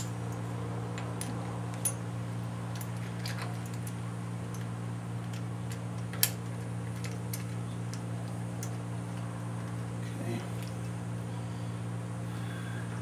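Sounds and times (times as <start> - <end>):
steady low hum: 0.0 - 13.0
metal parts clicking: 2.7 - 8.8.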